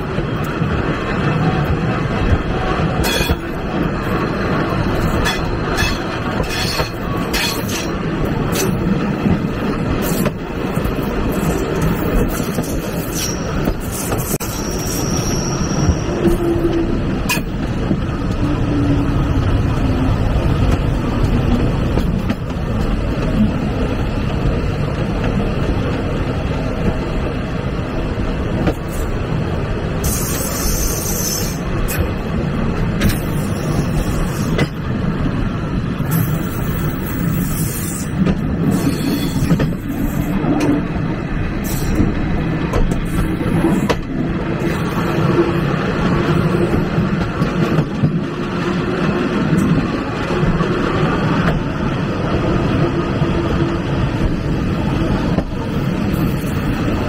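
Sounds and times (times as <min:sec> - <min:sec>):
train wheels rumbling on rails: 0:00.0 - 0:57.0
high-pitched wheel squeal: 0:13.1 - 0:17.0.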